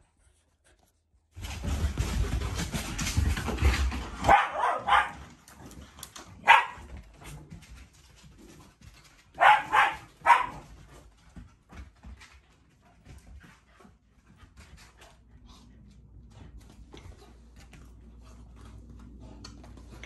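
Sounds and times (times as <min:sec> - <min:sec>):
dog barking: 0:04.2 - 0:05.2, 0:06.4 - 0:06.9, 0:09.4 - 0:10.7.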